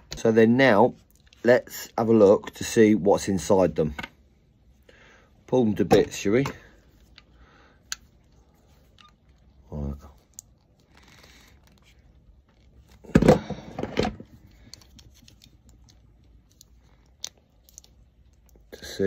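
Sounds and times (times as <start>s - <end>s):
plastic clicks and cracks: 14.5s - 18.7s.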